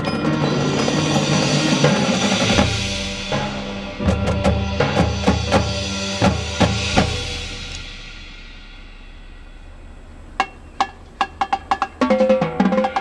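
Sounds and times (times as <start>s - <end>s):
heavy drum hits: 0.3s - 13.0s
held low note: 6.7s - 11.2s.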